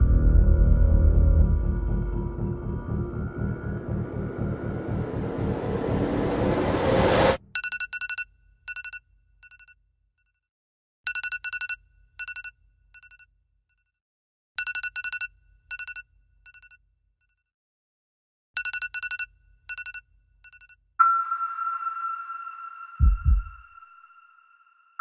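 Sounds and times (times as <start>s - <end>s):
smartphone alarm beeps: 11.1s - 13.2s, 14.6s - 16.8s, 18.6s - 20.0s, 21.0s - 24.4s.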